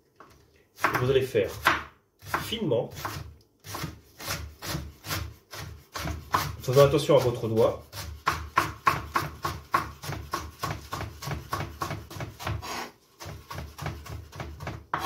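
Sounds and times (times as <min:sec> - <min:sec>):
knife chopping on cutting board: 0:00.8 - 0:15.0.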